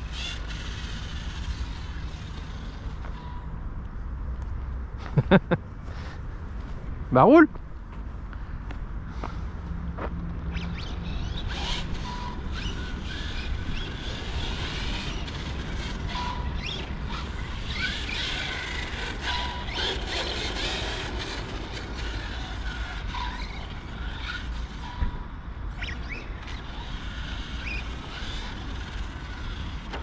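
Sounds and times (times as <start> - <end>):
high electric motor whine: 0.0 - 3.6, 10.0 - 30.0
tyres scrabbling on asphalt: 11.2 - 25.0.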